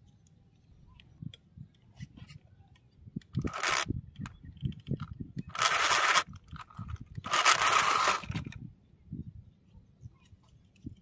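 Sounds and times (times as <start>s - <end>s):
electric toy car motor whirring: 3.4s - 3.9s, 5.0s - 8.6s.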